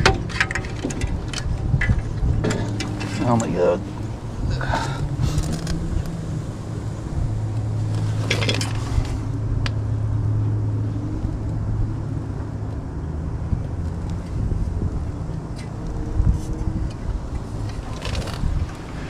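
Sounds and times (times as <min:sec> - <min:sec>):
gasket rustling and scraping: 0:00.0 - 0:04.2, 0:07.8 - 0:09.3, 0:17.4 - 0:19.0.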